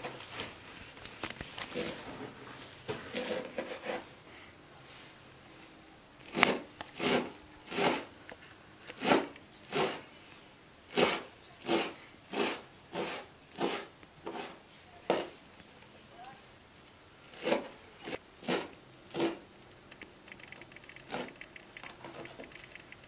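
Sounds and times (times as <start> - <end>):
knife chopping on plastic board: 9.0 - 10.0, 11.0 - 15.3.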